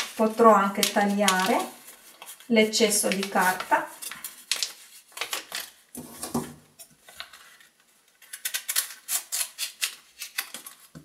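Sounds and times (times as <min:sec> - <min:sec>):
wrapping paper rustling: 0:00.0 - 0:05.9, 0:07.0 - 0:11.0
scissors snipping paper: 0:08.2 - 0:10.8.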